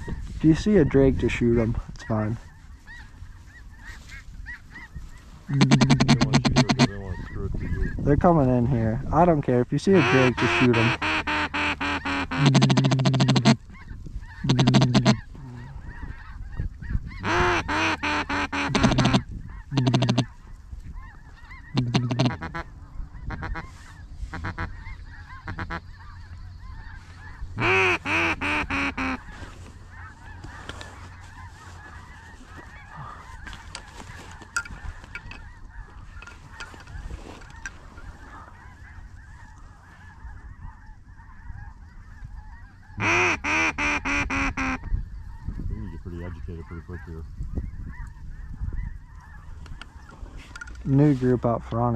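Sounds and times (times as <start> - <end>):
distant waterfowl chatter: 0.0 - 8.1, 8.7 - 51.9
duck call quacking: 5.5 - 7.8, 9.9 - 16.4, 17.1 - 20.4, 21.0 - 45.4.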